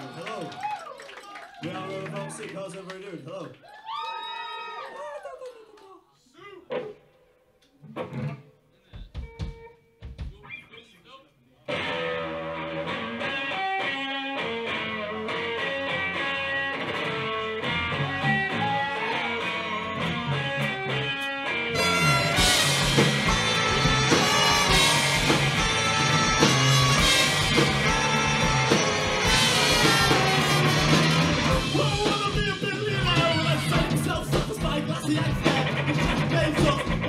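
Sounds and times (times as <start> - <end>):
drums: 6.7 - 7.2, 7.8 - 10.7, 11.7 - 37.0
electric guitar picking: 11.7 - 34.2
trumpet: 21.7 - 32.2.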